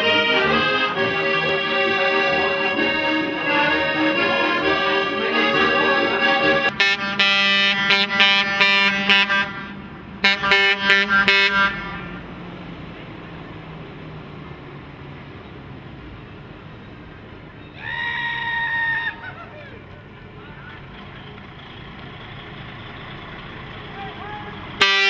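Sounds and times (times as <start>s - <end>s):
accordion choppy chords: 0.0s - 12.0s
truck horn blast: 0.0s - 12.3s, 24.8s - 25.0s
truck engine running: 0.0s - 17.7s, 19.2s - 25.0s.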